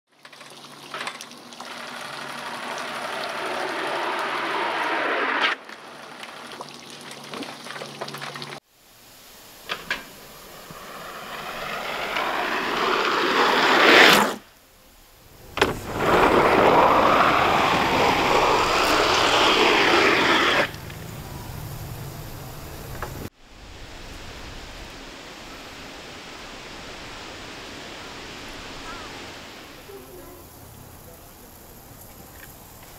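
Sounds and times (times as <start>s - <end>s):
skis sliding on in-run track: 1.7s - 6.6s, 9.5s - 14.6s, 15.3s - 24.5s.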